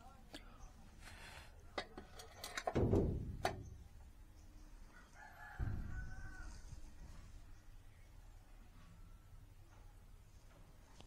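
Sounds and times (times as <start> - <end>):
rooster crowing: 4.9 - 7.0.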